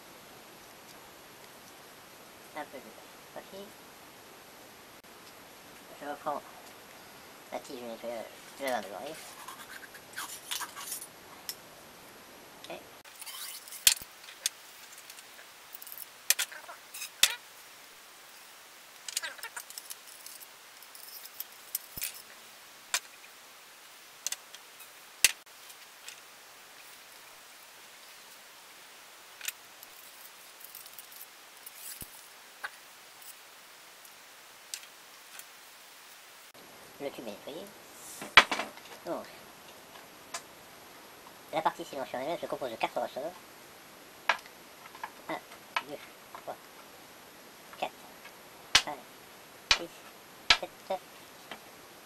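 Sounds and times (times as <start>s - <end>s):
faint steady hiss: 0.0s - 52.0s
metal parts rubbing: 9.2s - 11.1s, 13.1s - 17.4s, 19.1s - 22.3s, 29.4s - 32.3s.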